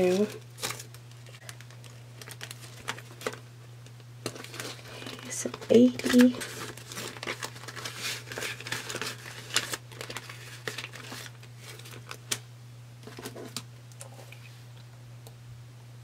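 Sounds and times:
paper banknotes rustling: 0.0s - 3.4s, 4.2s - 12.4s
plastic pouch crinkling: 0.0s - 3.4s, 4.2s - 12.4s.

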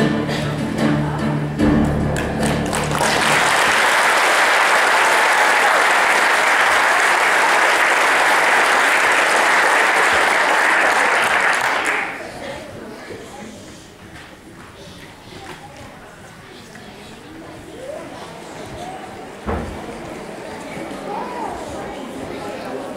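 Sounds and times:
backing music: 0.0s - 3.7s
audience applauding: 2.2s - 12.4s.

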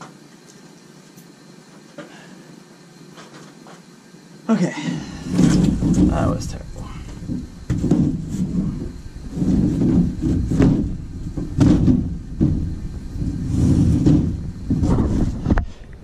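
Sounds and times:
close handling noise: 3.1s - 3.9s, 5.2s - 16.0s
ceiling panel scraping in metal grid: 5.0s - 15.8s.

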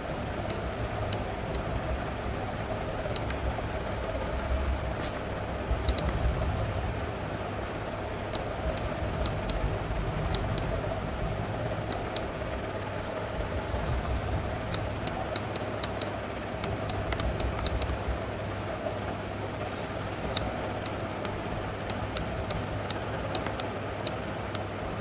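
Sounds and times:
low electrical hum: 0.0s - 25.0s
computer mouse button clicks: 5.9s - 6.2s, 14.7s - 17.9s, 20.4s - 23.7s.

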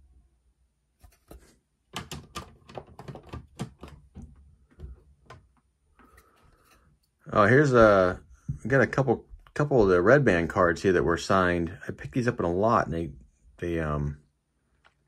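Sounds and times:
plastic cases clacking: 1.2s - 6.7s.

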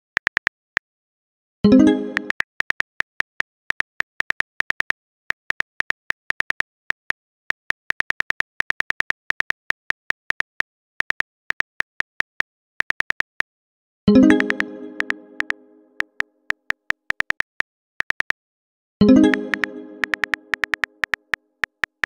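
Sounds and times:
phone keyboard typing clicks: 0.2s - 0.6s, 1.9s - 13.5s, 14.2s - 18.4s, 19.1s - 22.0s.

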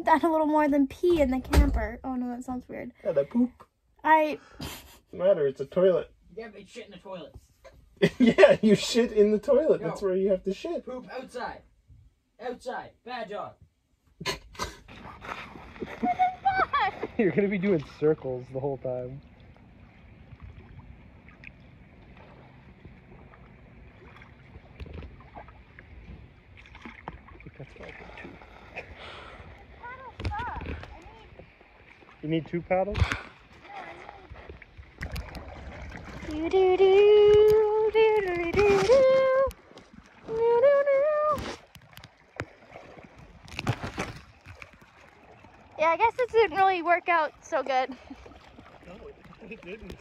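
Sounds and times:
paddle splashing in water: 14.8s - 50.0s.

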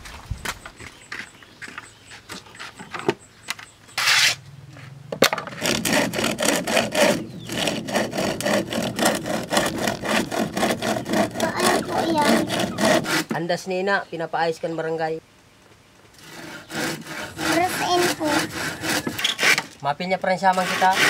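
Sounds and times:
handsaw clunking and scraping: 0.4s - 13.4s, 16.1s - 21.0s
saw cutting wood: 5.4s - 13.4s, 16.2s - 21.0s.

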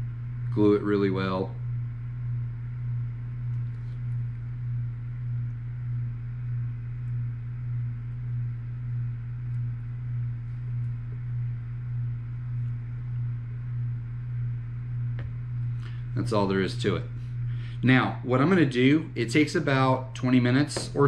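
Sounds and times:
pulsing low hum: 0.0s - 21.0s.

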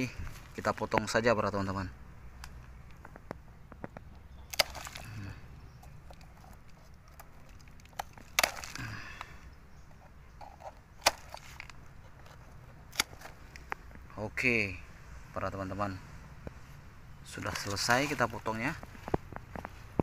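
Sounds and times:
pruning shears snipping roots: 4.0s - 9.3s, 10.4s - 14.0s.

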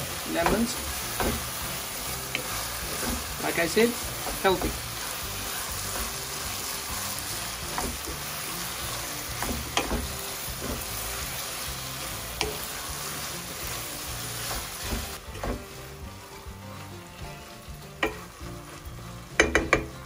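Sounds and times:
food sizzling in a pot: 0.0s - 20.0s
spatula clicking against pan: 19.4s - 19.9s.

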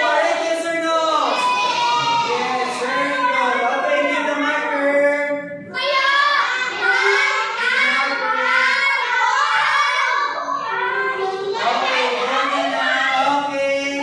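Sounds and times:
children singing in unison: 5.6s - 13.4s.

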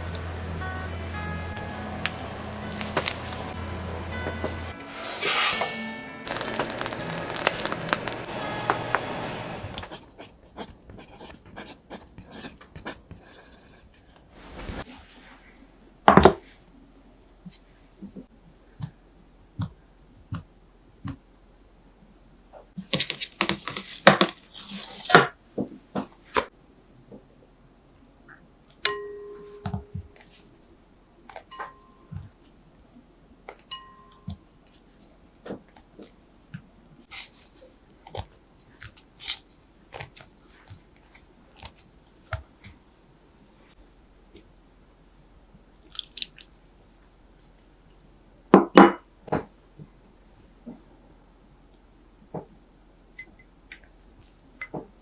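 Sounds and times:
pastry pieces dropping into bowl: 6.3s - 8.3s
glass bowl ringing: 28.9s - 30.0s, 33.7s - 34.3s.

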